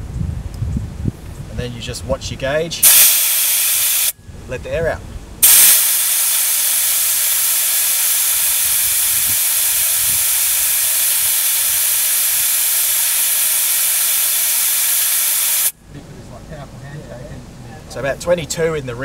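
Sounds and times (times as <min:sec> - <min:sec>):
air hissing out of a tyre: 0:02.8 - 0:04.2, 0:05.4 - 0:15.8.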